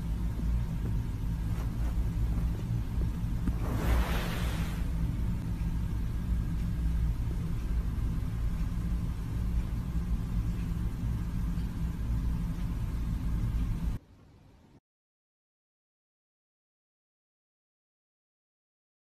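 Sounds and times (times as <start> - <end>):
low mechanical hum: 0.0 - 14.8.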